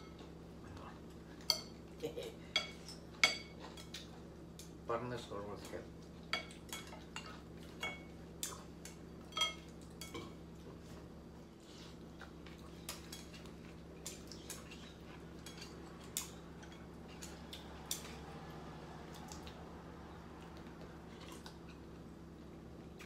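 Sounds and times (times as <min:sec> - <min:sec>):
utensils clinking against ceramic bowls: 0:09.3 - 0:10.2, 0:14.7 - 0:17.3.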